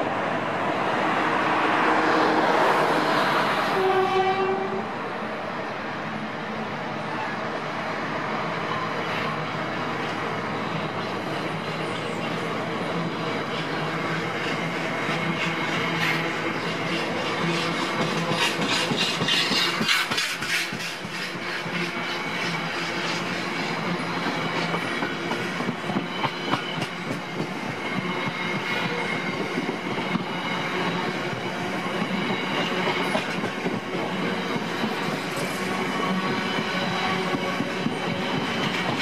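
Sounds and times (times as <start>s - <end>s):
freight train rolling past: 0.0s - 39.0s
wheels clicking over rail joints: 16.8s - 21.5s.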